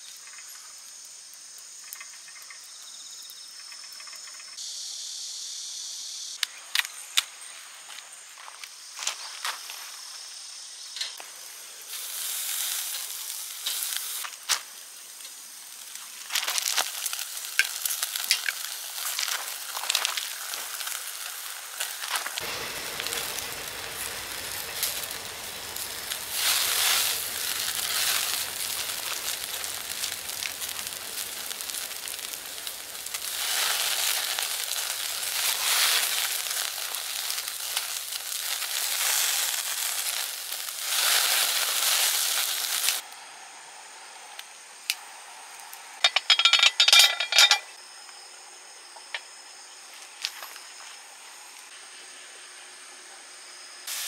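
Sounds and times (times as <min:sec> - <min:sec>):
meat sizzling on a grill: 0:11.2 - 0:43.1.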